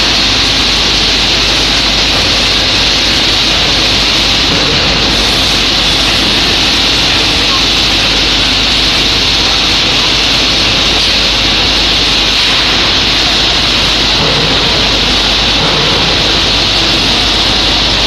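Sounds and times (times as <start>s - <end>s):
low machine hum: 0.0s - 18.0s
machine loud steady hiss: 0.0s - 18.0s.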